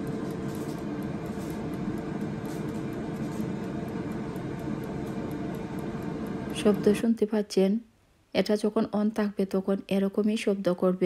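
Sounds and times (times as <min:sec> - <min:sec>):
low hum: 0:00.0 - 0:07.3
air fryer fan whirring: 0:00.0 - 0:07.7.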